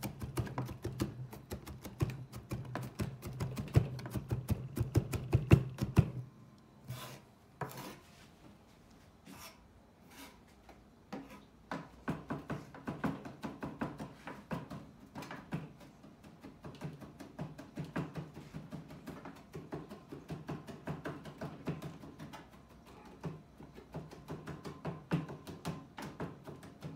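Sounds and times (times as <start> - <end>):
knife scraping board: 6.8 - 8.2, 9.2 - 10.5, 11.1 - 11.5.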